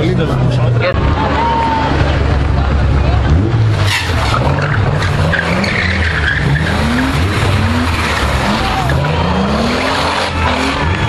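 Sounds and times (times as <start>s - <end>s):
car engine revving: 1.8s - 11.0s.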